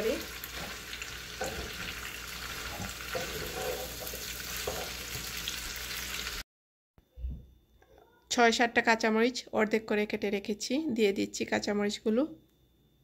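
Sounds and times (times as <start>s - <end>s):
food sizzling in a pan: 0.0s - 6.4s
wooden spatula scraping a pan: 0.4s - 5.4s.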